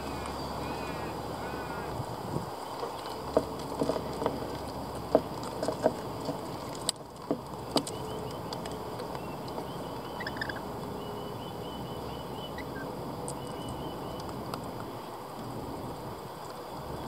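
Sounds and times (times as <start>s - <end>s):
steady background hiss: 0.0s - 6.8s.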